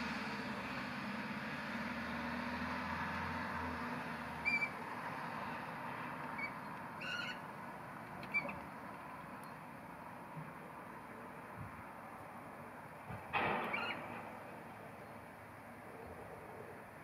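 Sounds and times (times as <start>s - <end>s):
high piping bird calls: 4.4s - 4.8s, 6.4s - 7.5s, 8.2s - 9.6s, 13.6s - 15.3s.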